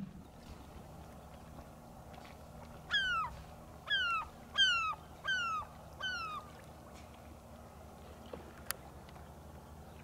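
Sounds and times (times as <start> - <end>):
gull calling: 2.9 - 6.5.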